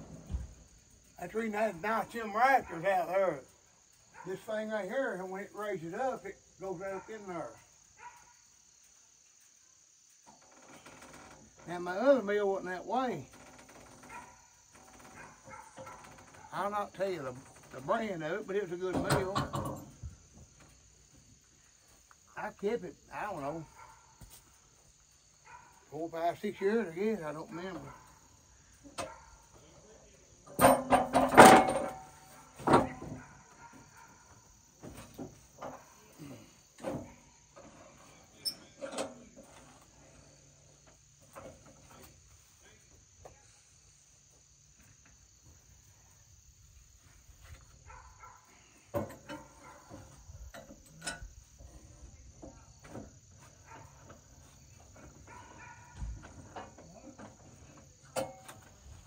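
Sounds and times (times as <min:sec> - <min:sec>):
high insect chirr: 0:00.0 - 0:59.0.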